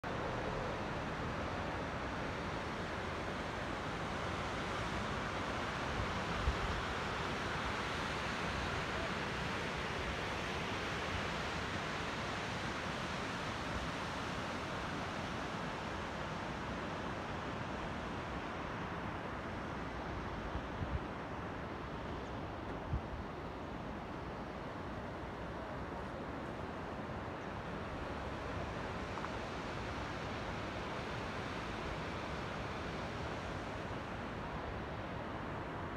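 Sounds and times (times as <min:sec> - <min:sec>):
river rushing through rapids: 0:00.0 - 0:35.9
small waterfalls spilling: 0:00.3 - 0:20.3.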